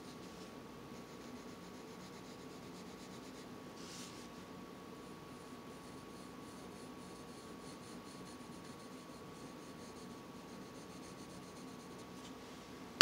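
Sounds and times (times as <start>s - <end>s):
pencil scratching on paper: 1.0s - 4.3s, 5.1s - 12.2s.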